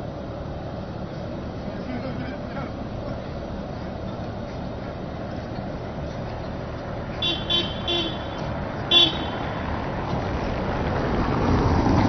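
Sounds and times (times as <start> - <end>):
tram and street rumble: 0.0 - 12.0
tram warning signal blasts: 7.2 - 9.5.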